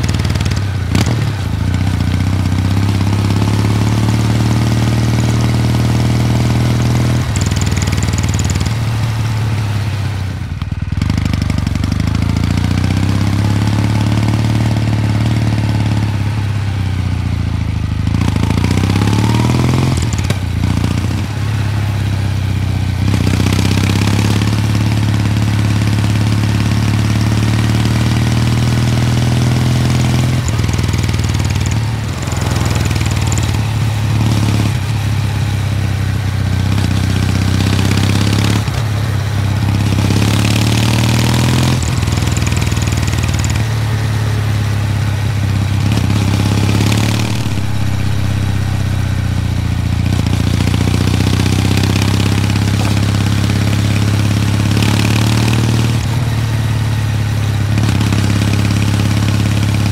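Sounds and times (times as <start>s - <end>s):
motorcycle engine running: 0.0s - 59.9s
steady rushing noise: 45.6s - 54.6s.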